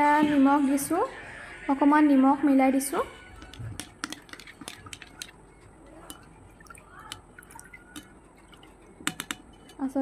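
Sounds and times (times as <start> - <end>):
liquid sloshing: 3.1 - 10.0.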